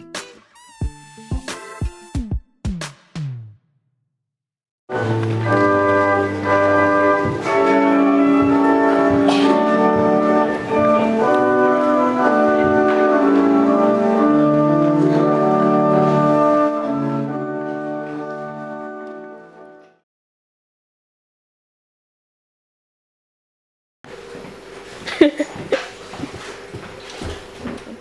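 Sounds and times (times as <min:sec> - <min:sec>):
organ playing slow chords: 0:04.9 - 0:19.9.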